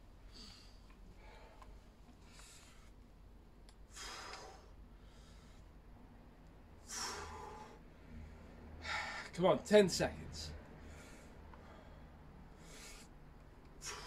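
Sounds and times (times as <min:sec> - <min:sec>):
man breathing hard: 0:00.3 - 0:03.1, 0:03.8 - 0:05.9, 0:06.8 - 0:09.4, 0:10.6 - 0:14.0.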